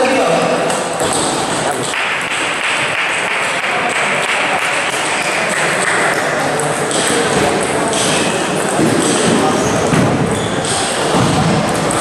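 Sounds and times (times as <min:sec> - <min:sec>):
applause echoing in a hall: 0:01.6 - 0:08.2.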